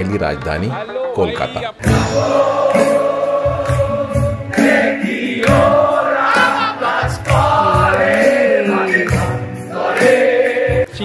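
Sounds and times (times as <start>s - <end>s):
steady low beat: 1.8s - 9.8s
music with singing voices: 1.8s - 11.0s.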